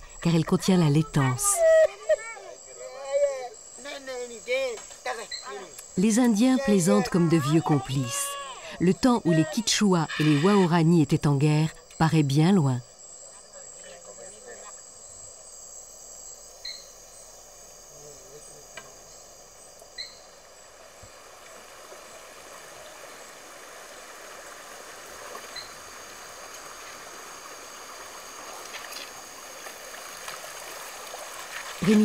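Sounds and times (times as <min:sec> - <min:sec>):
insects trilling: 0:00.0 - 0:32.0
river water running: 0:19.3 - 0:32.0.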